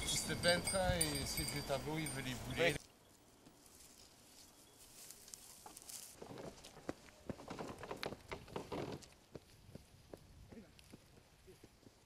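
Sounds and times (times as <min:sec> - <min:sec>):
footsteps on dirt track: 0:03.4 - 0:12.0.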